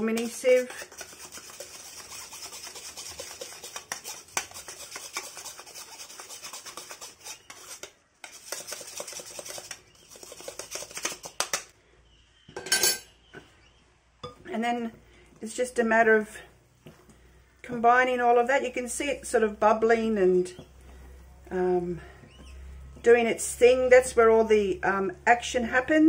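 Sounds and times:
spoon rasping powder through sieve: 0:00.0 - 0:11.5.

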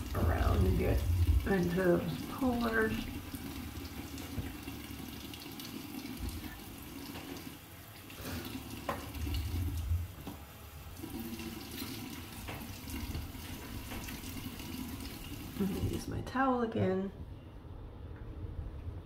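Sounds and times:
tap running into sink: 0:00.2 - 0:07.6, 0:08.3 - 0:16.0.

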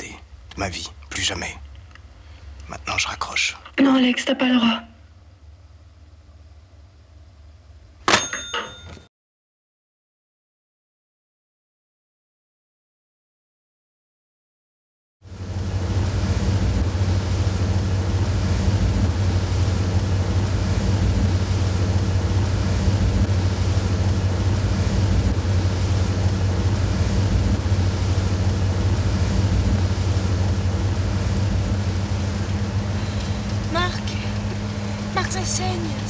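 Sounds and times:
car engine drone: 0:15.3 - 0:36.0.

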